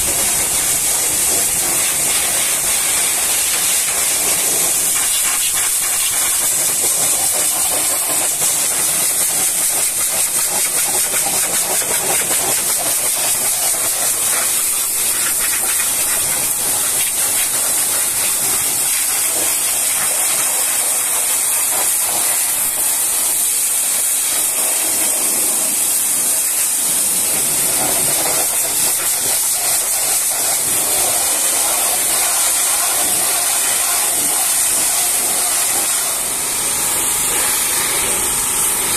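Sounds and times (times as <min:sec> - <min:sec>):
pressure washer jet hissing: 0:00.0 - 0:38.9
water splashing on engine parts: 0:26.0 - 0:36.3.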